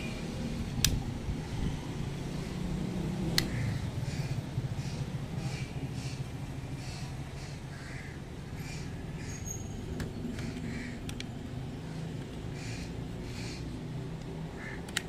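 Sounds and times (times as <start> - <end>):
small sharp clicks: 3.4 - 3.6, 14.2 - 15.0
birds calling: 3.4 - 15.0.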